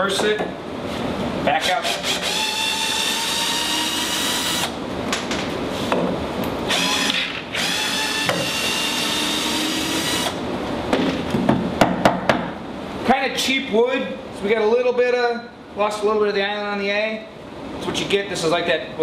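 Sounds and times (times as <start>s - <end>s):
cordless drill running: 1.8s - 4.8s, 6.7s - 10.4s.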